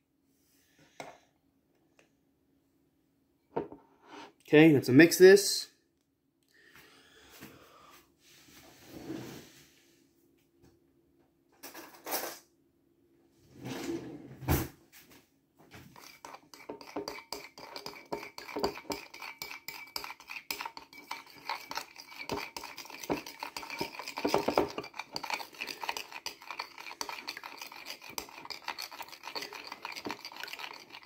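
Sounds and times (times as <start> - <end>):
eggs beaten in a bowl: 15.9 - 31.0.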